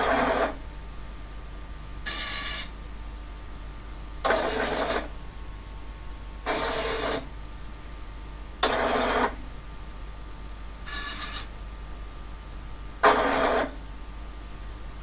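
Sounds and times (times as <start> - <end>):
plotter servo motor noise: 4.3 - 5.1, 6.5 - 7.3, 10.9 - 11.5, 13.0 - 13.7
sharp click: 8.6 - 8.8.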